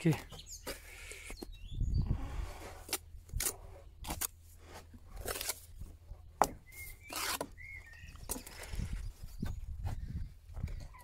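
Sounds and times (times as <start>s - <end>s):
trowel scraping mortar: 6.8s - 7.6s.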